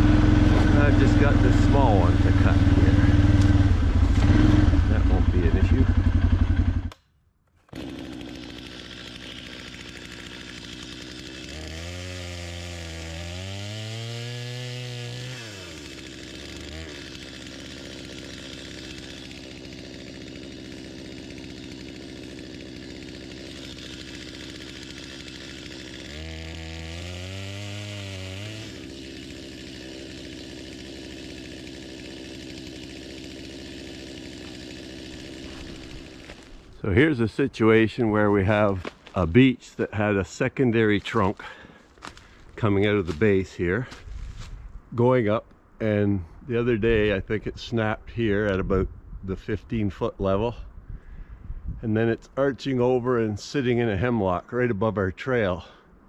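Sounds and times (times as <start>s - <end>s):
chainsaw idling and revving: 0.0s - 7.0s, 7.6s - 39.7s, 40.7s - 44.4s.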